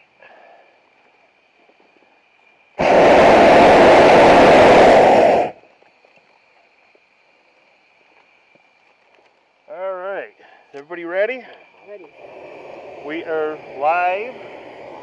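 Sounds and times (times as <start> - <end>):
propane burner flame roaring: 2.8 - 5.6, 11.7 - 15.0.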